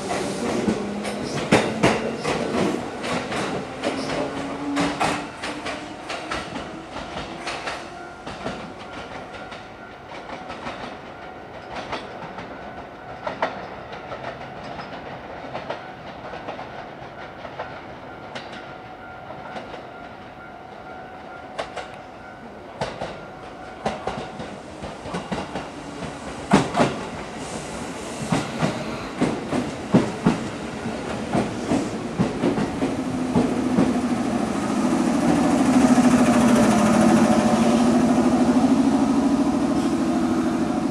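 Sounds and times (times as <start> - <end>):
train wheels clicking over rail joints: 0.0 - 12.6, 23.8 - 38.6
train humming: 0.0 - 40.9.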